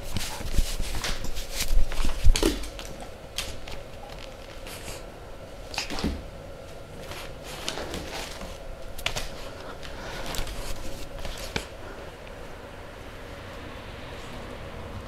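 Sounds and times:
puppies scuffling on clothing: 0.0s - 5.0s, 7.0s - 12.1s.

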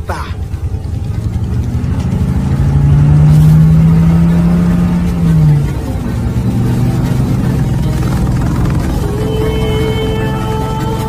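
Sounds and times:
car engine driving off: 0.0s - 11.0s.

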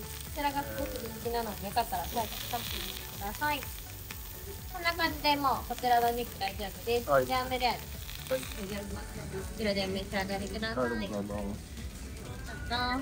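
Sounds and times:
meat sizzling on a grill: 0.0s - 13.0s
voices chattering: 0.3s - 3.8s.

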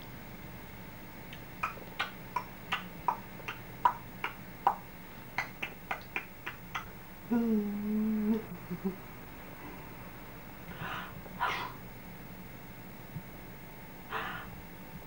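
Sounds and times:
person clicking tongue: 1.3s - 6.9s.

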